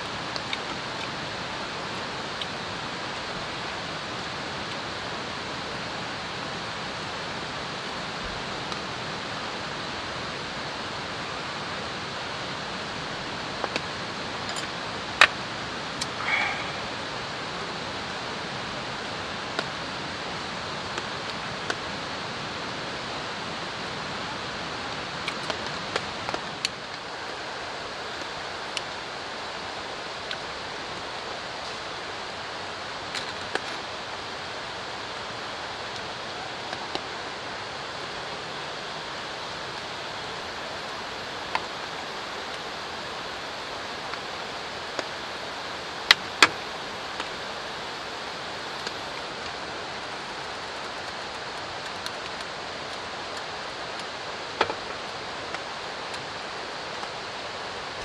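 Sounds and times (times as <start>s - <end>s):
drizzling rain and running water: 0.0s - 58.0s.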